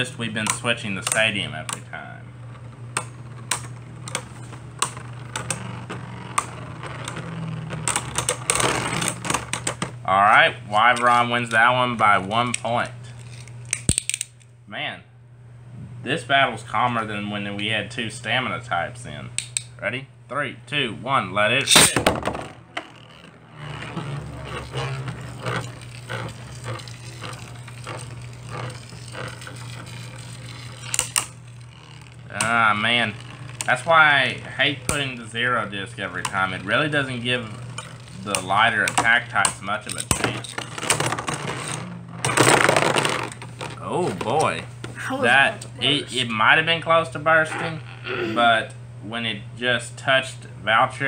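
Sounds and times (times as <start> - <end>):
spinning tops whirring: 0.0 - 10.0, 21.6 - 46.3.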